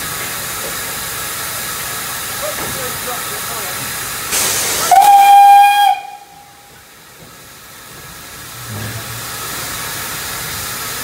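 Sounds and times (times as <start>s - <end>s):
steam hissing: 0.0s - 11.0s
steam locomotive whistle blast: 4.8s - 6.7s.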